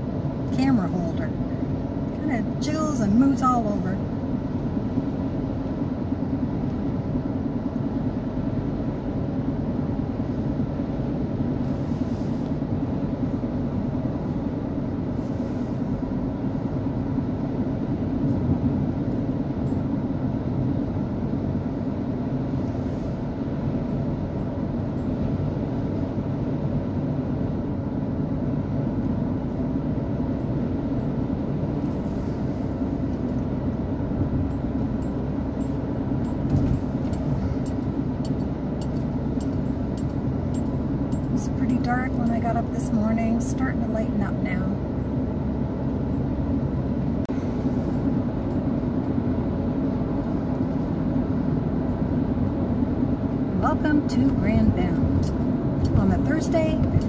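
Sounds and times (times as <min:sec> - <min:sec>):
tyre and engine drone: 0:00.0 - 0:57.0.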